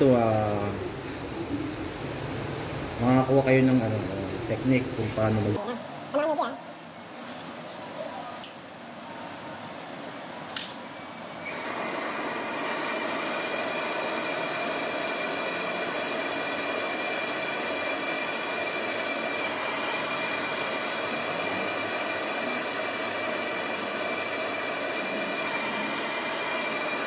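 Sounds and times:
torch flame hissing: 11.4s - 27.0s
faint steady whistle: 24.2s - 27.0s.

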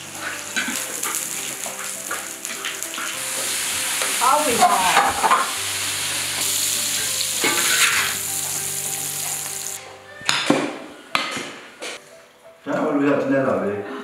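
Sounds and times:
food sizzling in a wok: 0.0s - 9.8s
metal spatula scraping a wok: 0.1s - 4.1s, 4.9s - 9.7s.

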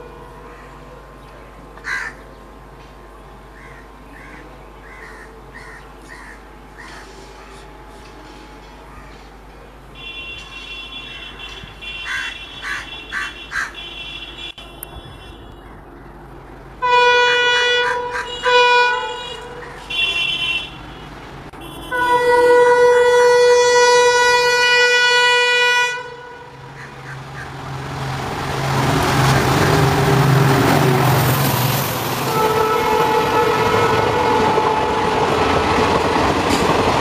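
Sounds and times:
train running noise: 0.0s - 37.0s
locomotive horn blasts: 9.9s - 15.6s, 16.8s - 26.8s, 32.0s - 35.8s
locomotive engine hum: 11.3s - 37.0s.

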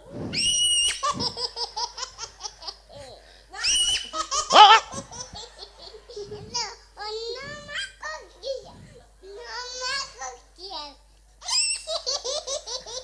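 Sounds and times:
man laughing high-pitched: 3.9s - 5.4s.

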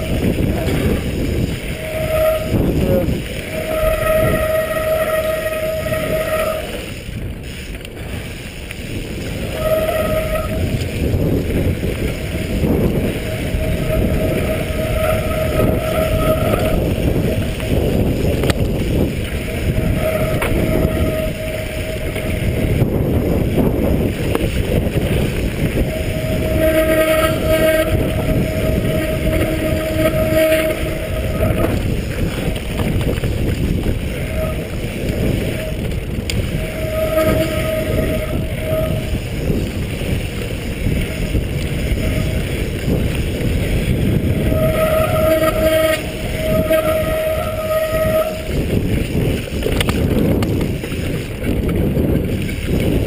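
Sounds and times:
bike whine: 0.0s - 53.0s
tyres rumbling over dirt: 0.0s - 53.0s
wind buffeting microphone: 0.0s - 53.0s.

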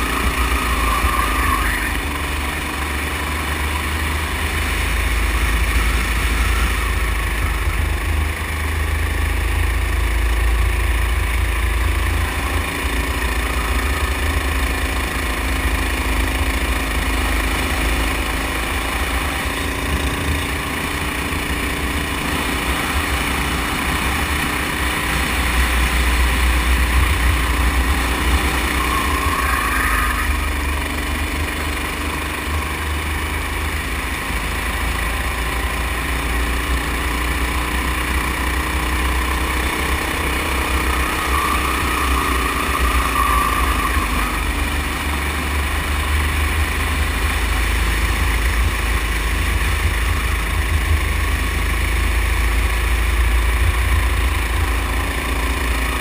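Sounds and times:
go-kart engine running: 0.0s - 56.0s.

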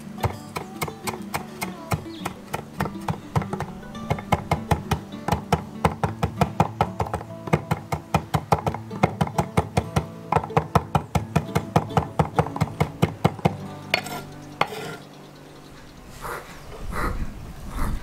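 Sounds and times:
acoustic guitar music: 0.0s - 16.7s
knife chopping on wooden board: 0.2s - 15.0s.

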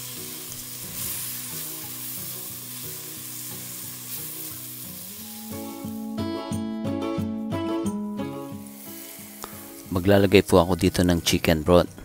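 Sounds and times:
onion sizzling in hot oil: 0.0s - 6.2s, 8.3s - 10.8s.

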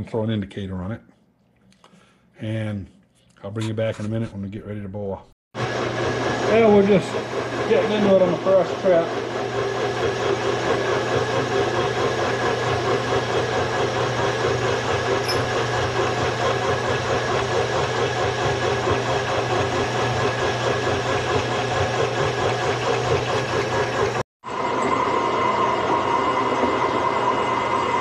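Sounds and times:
boring head cutting steel: 5.6s - 21.4s
machine humming: 5.6s - 28.0s.

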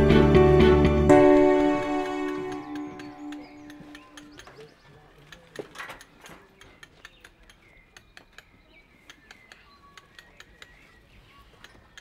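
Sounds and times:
metallic taps of masonry tools: 2.5s - 10.8s.

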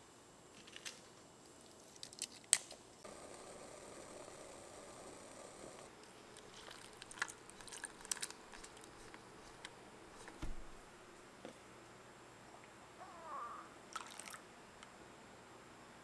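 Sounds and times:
wet clicks and squishes: 6.4s - 9.7s.

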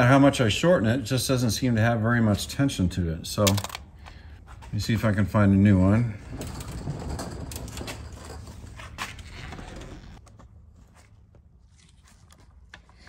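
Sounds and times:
small metal parts rattling: 6.3s - 8.8s.

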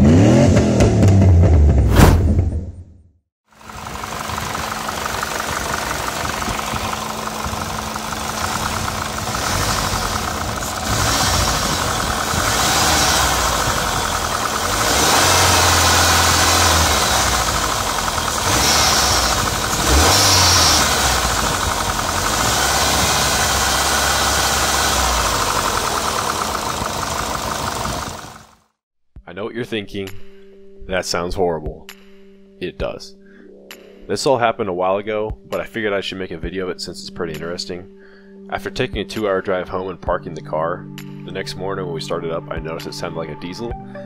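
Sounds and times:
car engine clattering and revving: 0.0s - 1.7s, 3.6s - 28.6s.

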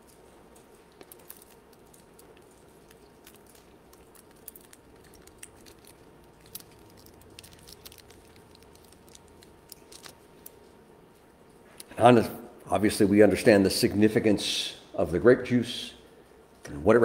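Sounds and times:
thin plastic crinkling and clicking: 0.0s - 12.0s.

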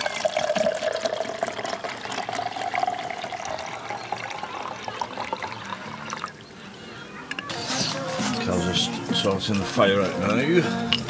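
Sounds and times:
drink pouring into glass: 0.0s - 6.4s.

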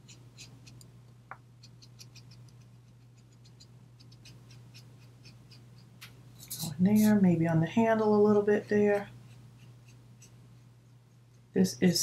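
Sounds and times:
marker scratching on cardstock: 0.0s - 0.8s, 1.6s - 5.9s
low electrical hum: 0.0s - 12.0s.

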